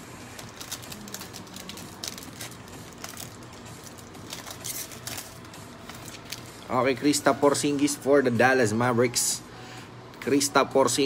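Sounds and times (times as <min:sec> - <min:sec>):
foil wrapper crinkling: 0:00.2 - 0:06.8.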